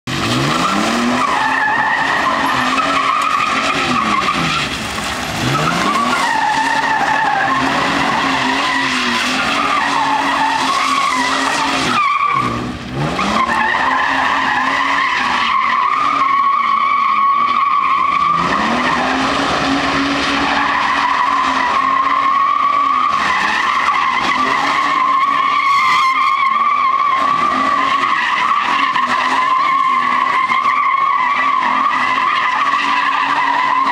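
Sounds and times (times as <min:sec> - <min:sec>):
engine revving high: 0:00.1 - 0:16.4
tyres squealing: 0:00.6 - 0:33.9.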